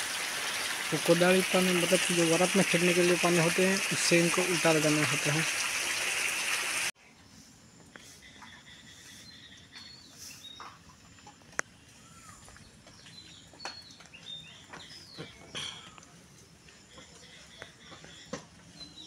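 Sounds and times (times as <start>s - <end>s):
bird chirps: 8.0s - 16.1s.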